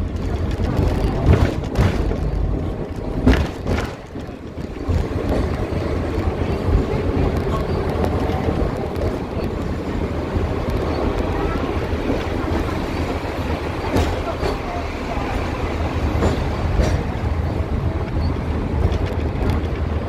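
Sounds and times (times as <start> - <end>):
tram rumbling along tracks: 0.0 - 20.0.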